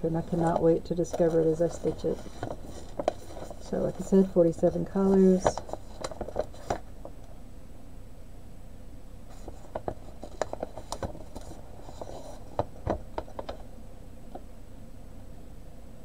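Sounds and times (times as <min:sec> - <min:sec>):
paper rustling and crinkling: 0:00.1 - 0:07.0, 0:09.3 - 0:13.7.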